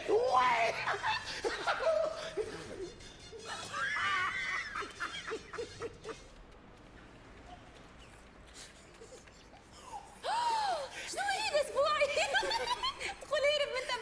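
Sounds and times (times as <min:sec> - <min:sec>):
men laughing: 0:00.6 - 0:06.6, 0:12.0 - 0:13.3.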